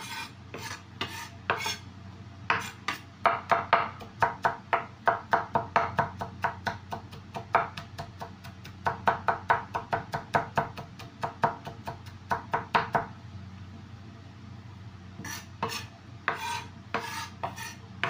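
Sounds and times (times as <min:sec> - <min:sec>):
knife chopping on wooden board: 0:00.0 - 0:01.8, 0:02.5 - 0:13.1, 0:15.2 - 0:17.8.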